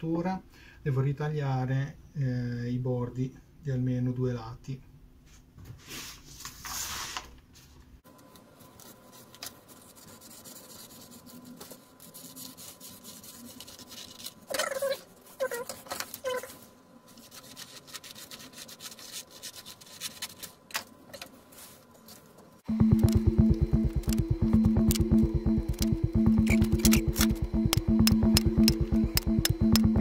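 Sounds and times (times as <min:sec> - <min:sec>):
paper rustling: 0:08.3 - 0:22.4
scissors cutting paper: 0:09.2 - 0:16.5, 0:17.1 - 0:20.7.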